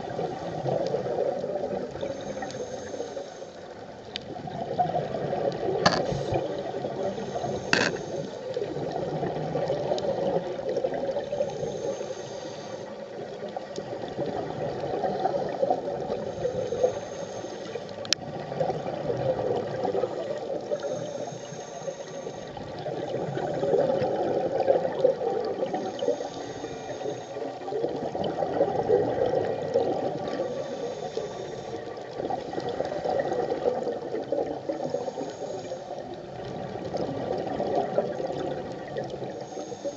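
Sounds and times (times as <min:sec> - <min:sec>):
diver breathing through regulator: 0:02.0 - 0:03.6, 0:05.8 - 0:08.5, 0:11.4 - 0:13.0, 0:16.2 - 0:17.9, 0:20.0 - 0:23.5, 0:25.8 - 0:27.5, 0:30.3 - 0:32.7, 0:34.7 - 0:36.0, 0:39.3 - 0:39.9
bubbles gurgling: 0:04.3 - 0:11.7, 0:18.2 - 0:20.8, 0:22.6 - 0:26.1, 0:27.6 - 0:30.7, 0:31.9 - 0:35.0, 0:36.1 - 0:39.3.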